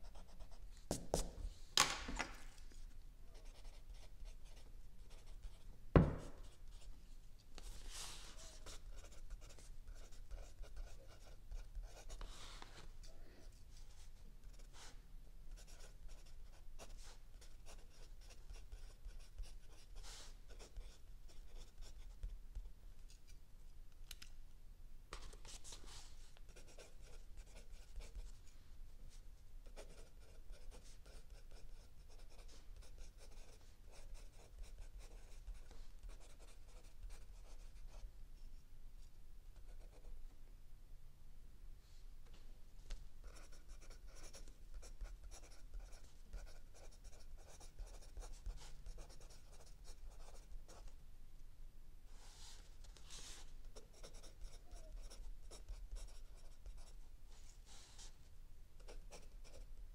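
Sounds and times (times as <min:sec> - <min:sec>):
faint low hum: 0:00.0 - 0:59.9
pencil scratching on paper: 0:07.6 - 0:12.5, 0:15.5 - 0:22.3, 0:25.4 - 0:28.2, 0:29.7 - 0:38.0, 0:43.2 - 0:50.8, 0:53.0 - 0:56.9.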